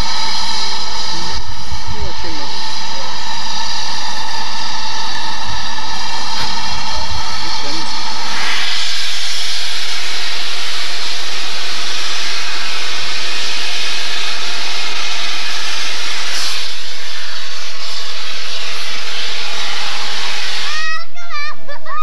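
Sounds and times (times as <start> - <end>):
steam locomotive hissing steam: 0.0 - 21.8.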